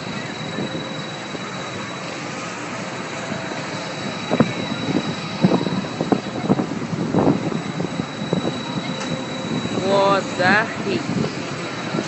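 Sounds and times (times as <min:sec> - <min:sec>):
pendulum ride rumbling: 0:00.0 - 0:12.0.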